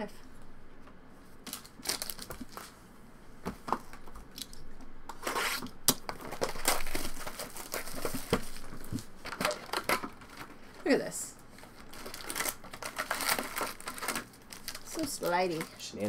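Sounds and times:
shrink-wrap crinkling and tearing: 1.4 - 2.8, 5.4 - 10.6, 11.6 - 16.0.

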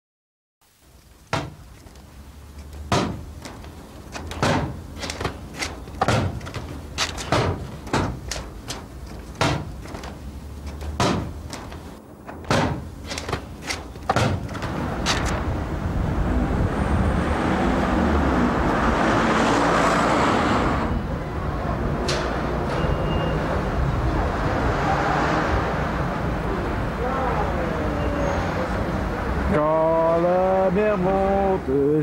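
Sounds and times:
sharp impacts: 2.7 - 15.5.

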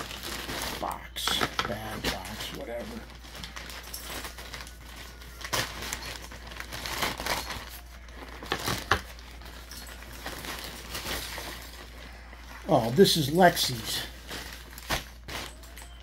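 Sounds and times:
plastic bag crinkling: 0.0 - 16.0.

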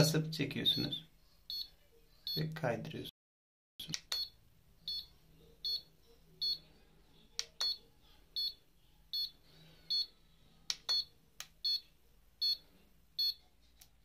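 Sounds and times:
device beeping: 0.6 - 2.6, 4.1 - 6.6, 9.2 - 10.1.

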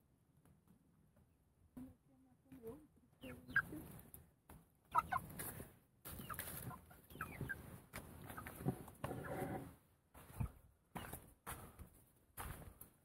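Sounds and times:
chickens clucking and peeping: 3.1 - 11.9.

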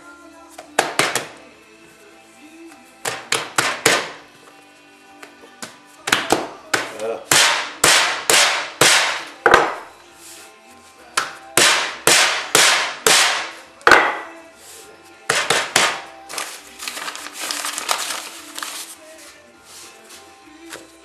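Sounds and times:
rolling pin whacking dough: 6.0 - 9.9, 11.1 - 14.3, 15.2 - 16.1.

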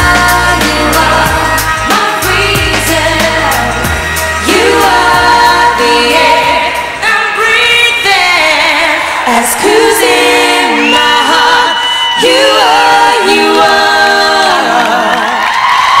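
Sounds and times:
backing music bass: 0.0 - 8.4
women singing in harmony: 0.0 - 16.0.

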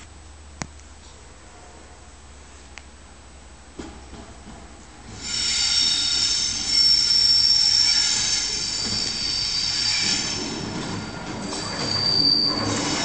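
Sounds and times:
train wheels squealing: 5.1 - 13.0.

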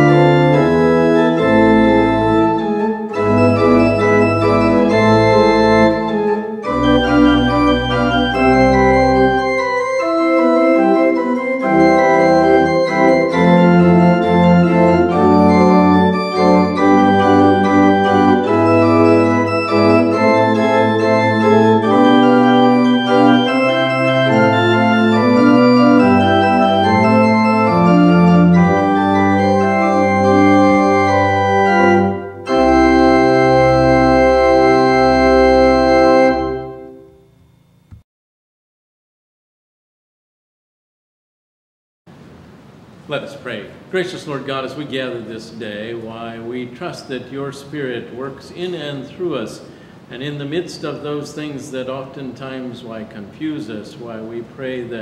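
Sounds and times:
deep organ pedal bass notes: 0.0 - 37.6
pipe organ chords: 0.0 - 38.0.

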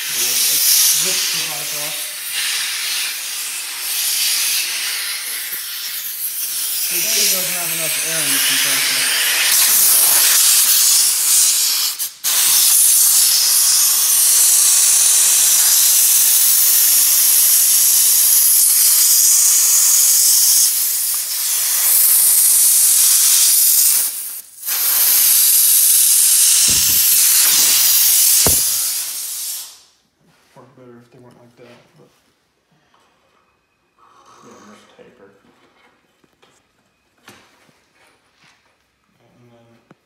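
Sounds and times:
compressed air hissing from blow gun: 0.0 - 30.0.

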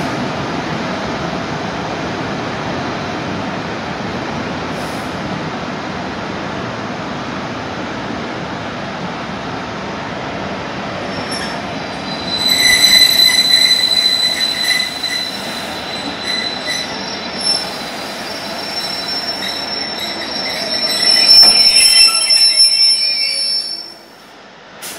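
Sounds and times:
train wheels rolling: 10.7 - 24.2
train wheels squealing: 11.0 - 24.2.

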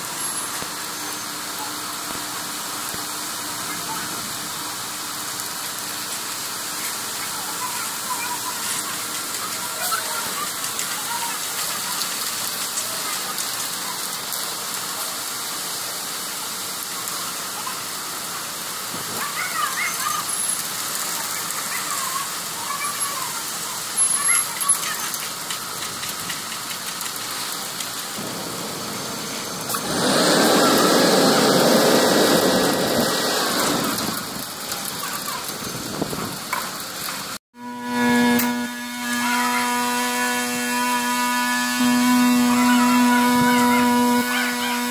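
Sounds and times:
wet concrete pouring down chute: 0.0 - 37.4.

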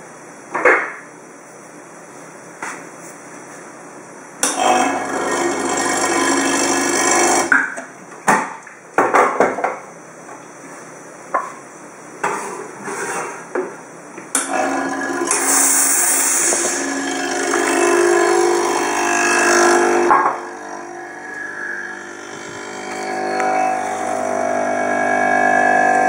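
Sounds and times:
espresso machine humming: 4.4 - 7.6, 14.4 - 26.0.

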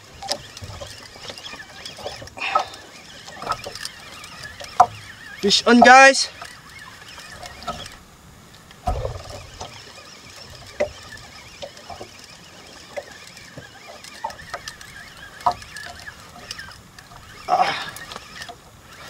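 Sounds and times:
short squeaks and knocks: 0.0 - 8.1, 8.8 - 19.0
fishing reel cranking: 0.0 - 19.0
low thump: 8.8 - 9.4.

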